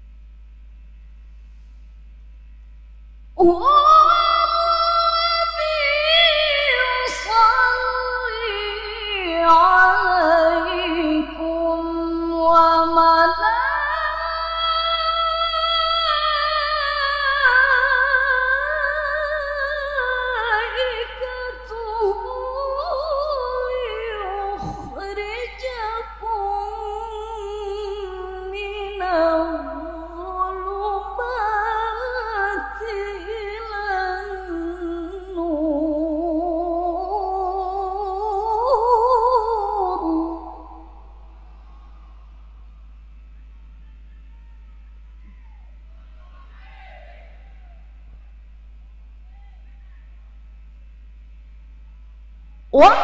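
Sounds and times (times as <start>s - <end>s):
woman reciting melodically: 3.4s - 41.2s, 52.8s - 53.0s.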